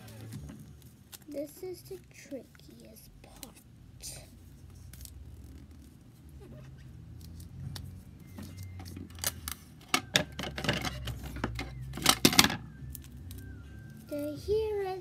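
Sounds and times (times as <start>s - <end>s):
tape dispenser handling: 7.1s - 13.5s.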